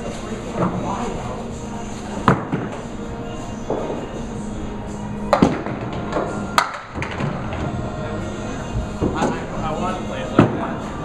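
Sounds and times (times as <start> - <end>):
steady hum: 0.0 - 11.0
bowling balls hitting pins: 2.2 - 3.0, 5.3 - 8.1, 10.3 - 10.8.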